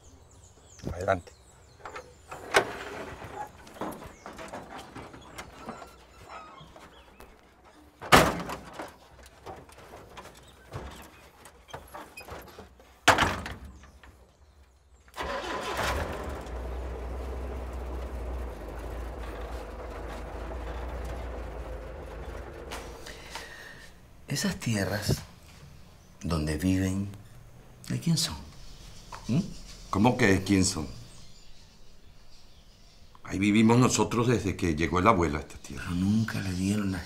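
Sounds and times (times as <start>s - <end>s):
truck doors slamming: 8.0s - 14.0s, 15.1s - 24.2s
truck engine starting and idling: 15.0s - 24.3s.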